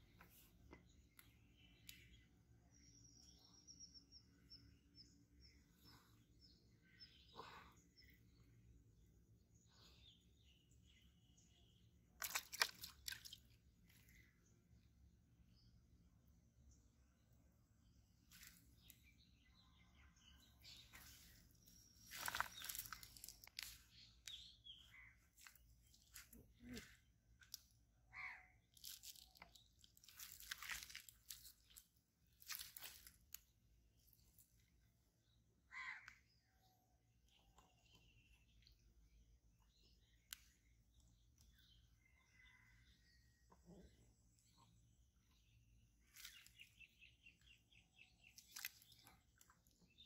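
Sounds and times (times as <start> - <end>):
bird chirps: 18.3 - 31.8, 34.0 - 50.0.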